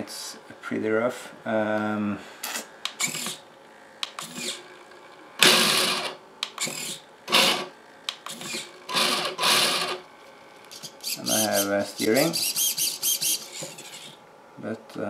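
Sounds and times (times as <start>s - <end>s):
electric motor and gearbox whirring: 2.6s - 3.4s, 4.1s - 4.7s, 5.4s - 10.0s, 10.7s - 14.2s.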